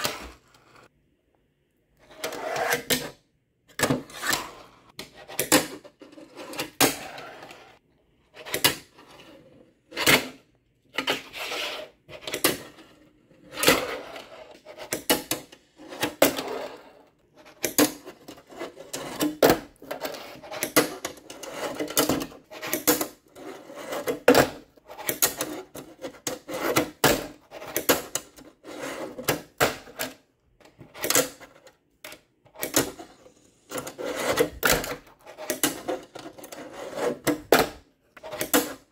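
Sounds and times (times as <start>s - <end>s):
fingerboard wheels rolling: 0.0s - 0.9s, 2.0s - 3.1s, 4.0s - 7.8s, 32.5s - 38.9s.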